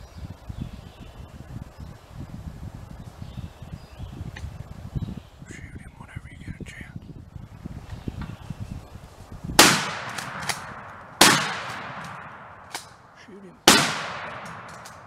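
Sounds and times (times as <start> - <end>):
shotgun shots echoing: 9.6 - 13.0, 13.6 - 15.0.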